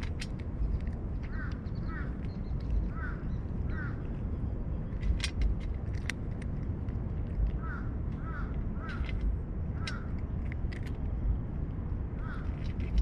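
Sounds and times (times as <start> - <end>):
cat crunching dry kibble: 0.0 - 1.3, 4.8 - 11.7, 12.4 - 13.0
steady low rumble: 0.0 - 13.0
bird calling: 1.2 - 4.4.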